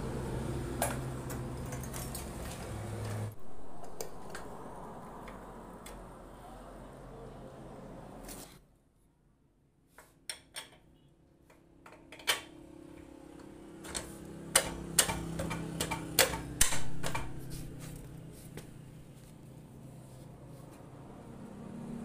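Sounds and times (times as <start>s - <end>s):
low hum: 3.3s - 6.5s.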